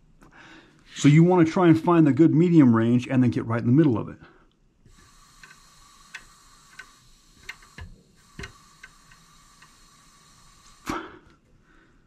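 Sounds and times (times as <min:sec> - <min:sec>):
air hissing through barrel: 0:04.8 - 0:11.4.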